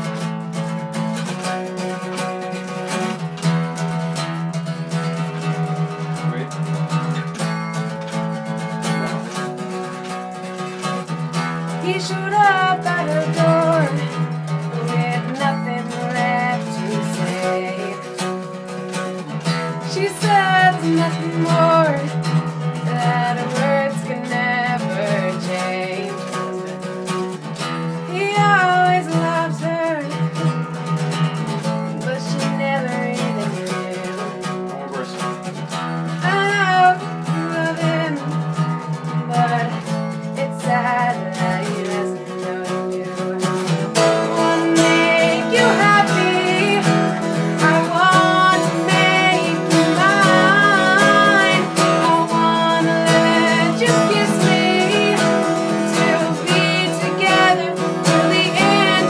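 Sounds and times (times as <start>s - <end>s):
guitar strumming: 0.0s - 59.0s
person singing: 11.7s - 30.7s, 31.9s - 35.5s, 36.2s - 59.0s.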